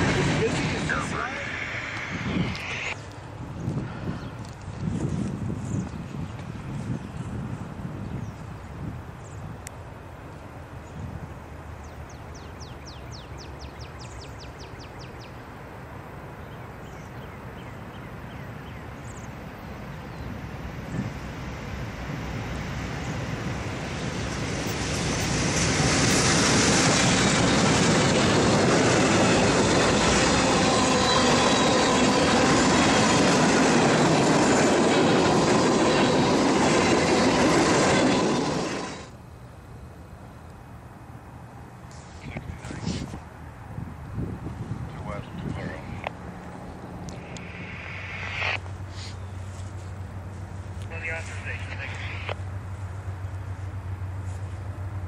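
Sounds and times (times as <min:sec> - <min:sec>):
train wheels on rails: 0:00.0 - 0:07.8, 0:19.1 - 0:39.2.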